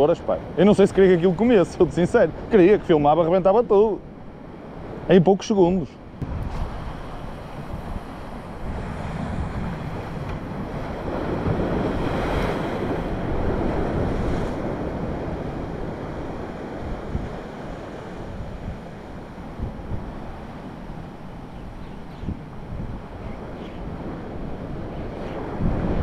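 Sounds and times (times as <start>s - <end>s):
sea surf breaking: 0.0s - 26.0s
wind rumbling on microphone: 6.0s - 26.0s.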